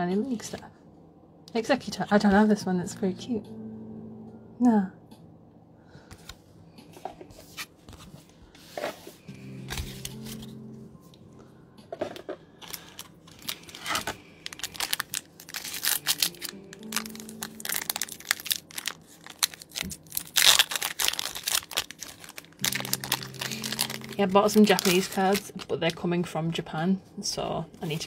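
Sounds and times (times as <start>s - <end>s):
foil wrapper crinkling and tearing: 12.6s - 26.0s.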